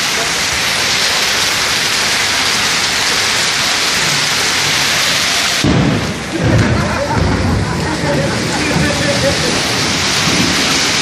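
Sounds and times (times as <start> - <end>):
hail and heavy rain on tiles: 0.0 - 11.0
low rumble of thunder: 5.6 - 11.0.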